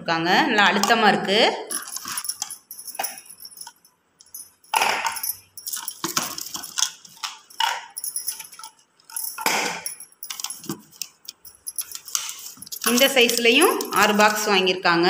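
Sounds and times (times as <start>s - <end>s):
plastic film crinkling: 10.4s - 14.7s.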